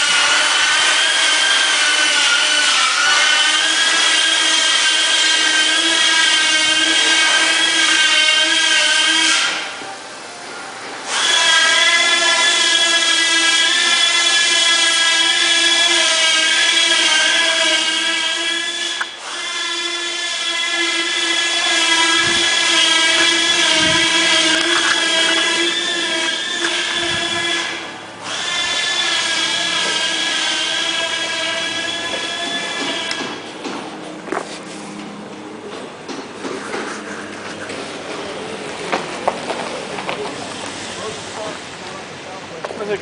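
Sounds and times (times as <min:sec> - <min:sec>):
power tool whining: 0:00.0 - 0:09.9, 0:11.0 - 0:33.8.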